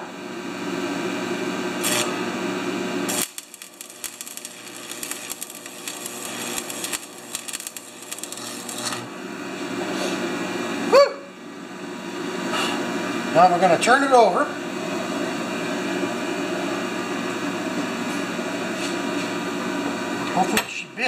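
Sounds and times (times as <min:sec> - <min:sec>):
welder hum: 0:00.0 - 0:20.1
welding arc crackling: 0:01.8 - 0:02.3, 0:02.9 - 0:09.1.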